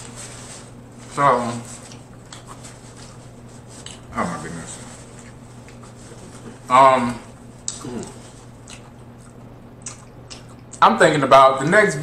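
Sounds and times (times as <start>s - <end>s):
wet chewing and lip smacks: 1.9s - 2.6s, 3.8s - 4.0s, 7.6s - 10.8s.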